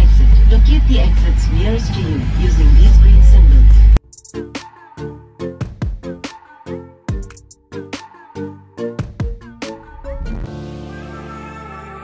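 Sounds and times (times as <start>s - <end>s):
low rumble in airliner cabin: 0.0s - 4.0s
electronic music with drum beat: 3.6s - 10.8s.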